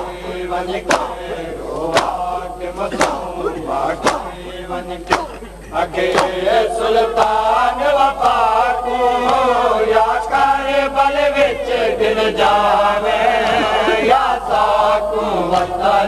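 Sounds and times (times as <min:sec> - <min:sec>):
men chanting in held notes: 0:00.0 - 0:16.0
chest-beating slaps: 0:00.8 - 0:02.2, 0:02.8 - 0:04.5, 0:05.1 - 0:06.4.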